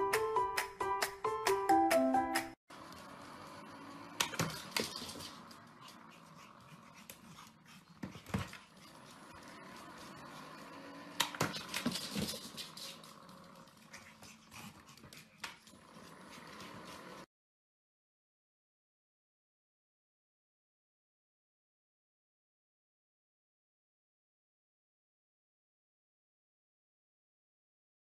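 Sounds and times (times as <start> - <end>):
dog moving on wooden floor: 11.3 - 14.1.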